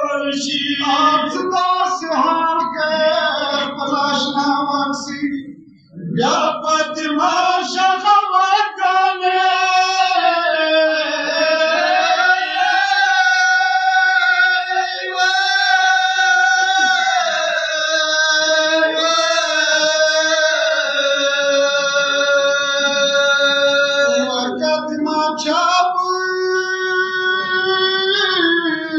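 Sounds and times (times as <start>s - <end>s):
man singing a lament: 0.0s - 28.9s.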